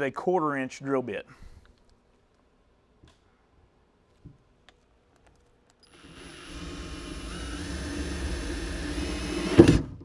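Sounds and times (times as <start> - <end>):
cordless drill whining: 5.8 - 9.9.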